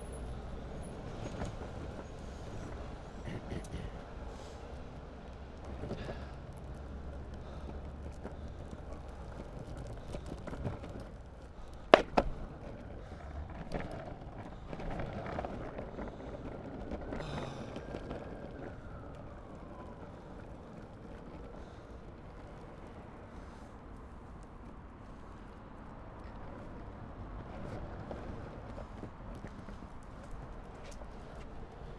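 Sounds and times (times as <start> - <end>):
longboard wheels rolling on asphalt: 0.0 - 31.9.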